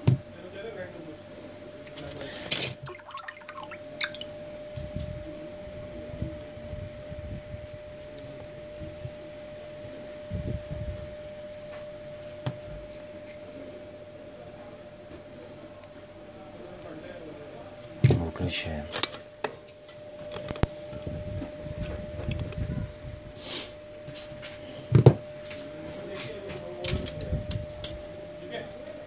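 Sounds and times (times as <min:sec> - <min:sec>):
faint steady hum: 0:00.3 - 0:22.8.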